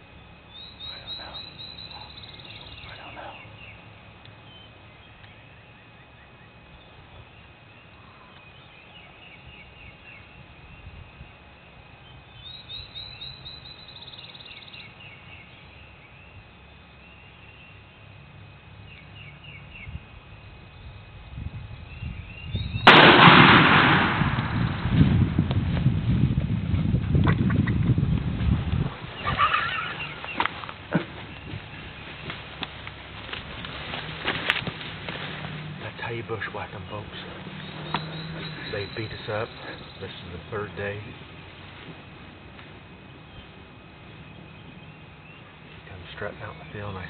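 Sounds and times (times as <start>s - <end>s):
songbird trilling: 0.5s - 11.4s, 12.0s - 18.1s, 21.8s - 22.9s, 36.0s - 42.2s
shotgun shot: 22.8s - 25.1s.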